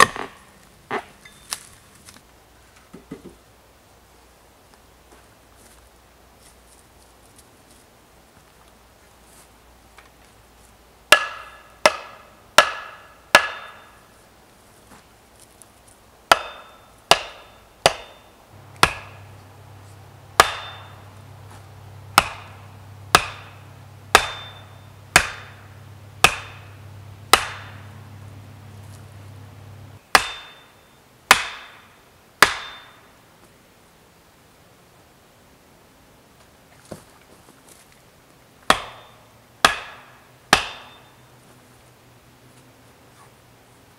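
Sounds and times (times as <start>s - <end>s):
axe chopping wood: 0.0s - 0.3s, 11.1s - 13.9s, 16.3s - 19.4s, 20.4s - 27.9s, 30.1s - 30.6s, 31.3s - 31.8s, 32.4s - 33.0s, 38.7s - 41.0s.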